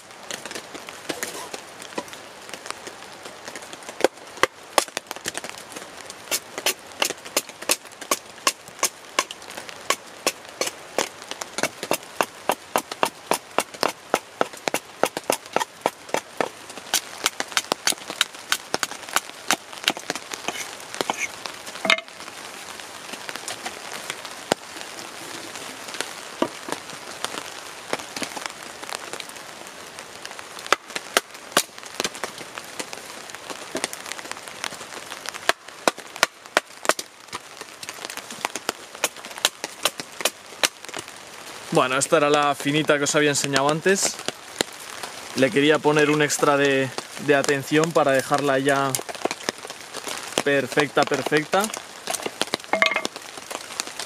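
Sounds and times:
rain pattering: 0.0s - 54.0s
hatchet chopping wood: 6.3s - 21.3s.

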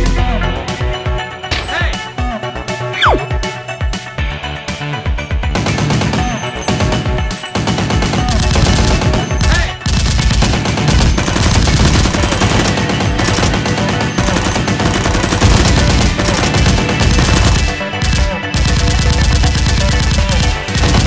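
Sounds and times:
background music: 0.0s - 21.0s
automatic gunfire: 7.7s - 21.0s.

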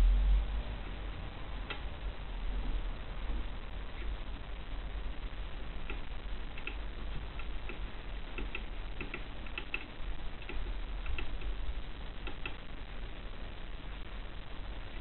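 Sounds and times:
low mains hum: 0.0s - 15.0s
clock control clicks: 5.8s - 11.5s, 12.2s - 12.6s.

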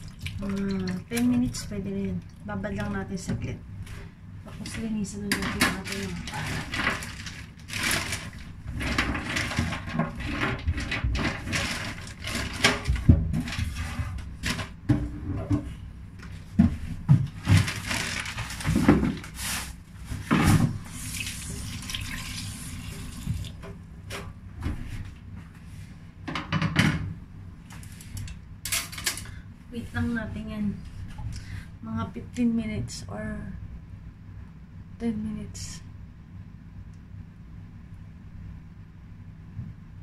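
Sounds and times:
water splashing in metal sink: 0.0s - 3.0s, 20.9s - 23.6s.

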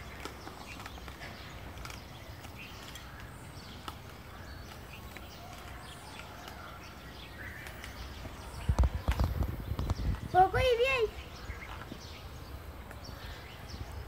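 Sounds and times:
puppy chewing paper bag: 0.0s - 10.2s
distant bird chirps: 0.0s - 14.0s.

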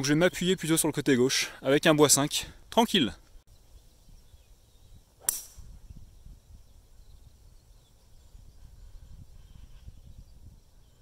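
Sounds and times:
faint bird chirps: 3.3s - 11.0s
wind buffeting microphone: 3.6s - 11.0s.

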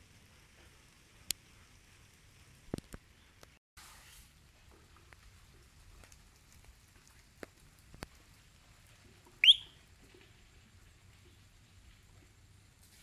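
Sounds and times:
frog whistled call: 9.4s - 9.8s.

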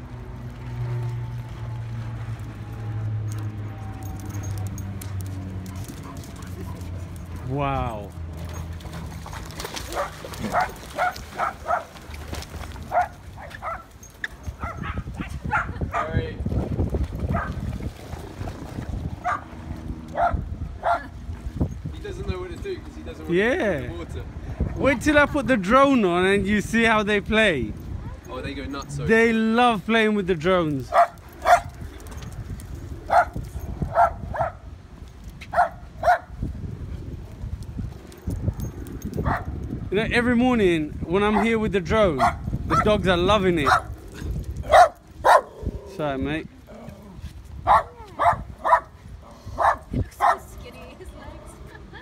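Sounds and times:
dog barking high: 9.9s - 11.9s, 12.9s - 13.9s, 14.6s - 16.1s, 17.3s - 17.6s, 19.2s - 19.5s, 20.1s - 21.1s, 30.9s - 31.7s, 33.1s - 34.6s, 35.5s - 36.3s, 39.2s - 39.5s, 42.2s - 42.9s, 43.6s - 43.9s, 44.7s - 45.6s, 47.6s - 48.9s, 49.6s - 50.5s.

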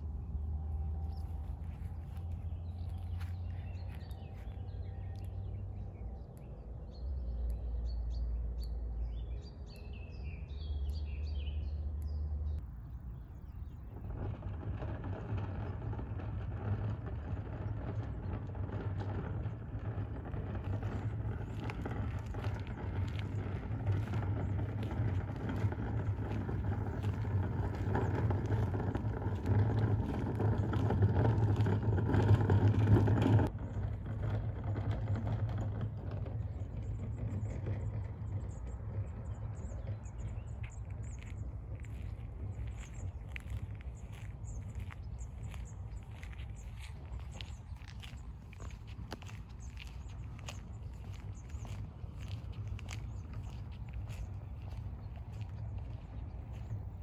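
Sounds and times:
birds chirping: 0.0s - 57.0s
low rumble: 0.0s - 57.0s
wheeled bins rattling on pavement: 13.5s - 57.0s.

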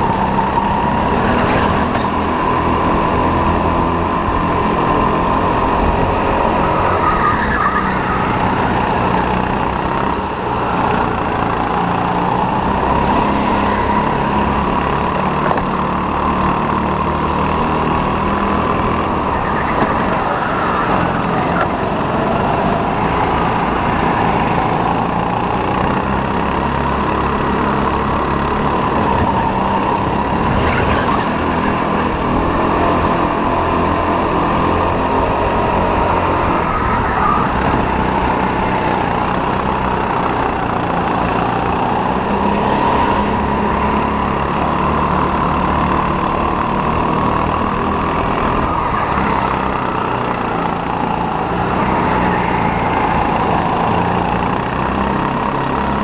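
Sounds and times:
another kart engine: 0.0s - 56.0s
kart engine running hard: 0.0s - 56.0s.

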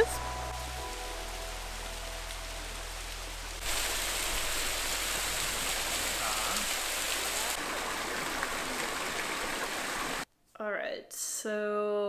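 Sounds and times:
small waterfall falling water: 0.0s - 10.3s.

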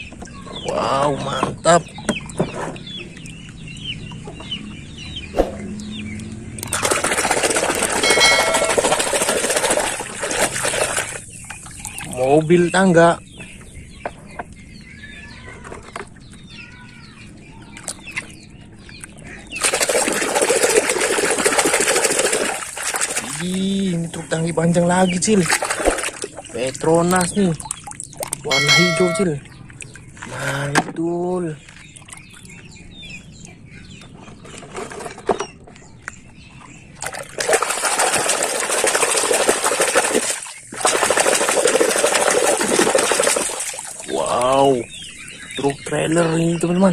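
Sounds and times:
hand splashing water in a tub: 6.6s - 12.2s, 19.5s - 23.9s, 25.2s - 29.4s, 37.0s - 44.2s.

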